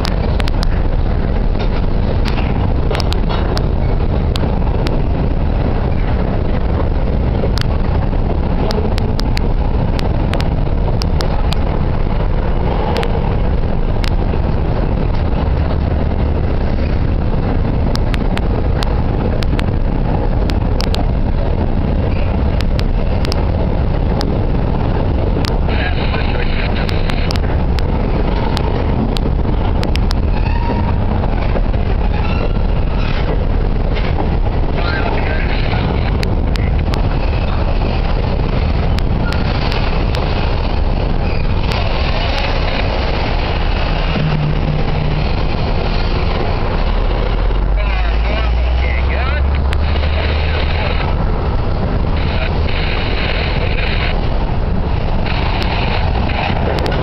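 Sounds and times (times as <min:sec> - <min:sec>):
freight cars rumbling on rails: 0:00.0 - 0:57.0
wheels clicking and clacking: 0:00.0 - 0:57.0.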